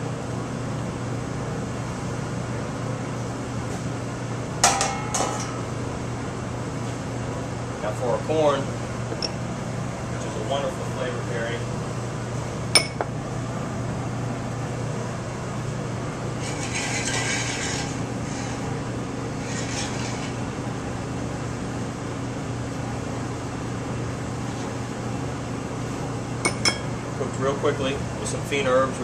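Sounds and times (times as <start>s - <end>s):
kitchen hum and rushing noise: 0.0s - 29.0s.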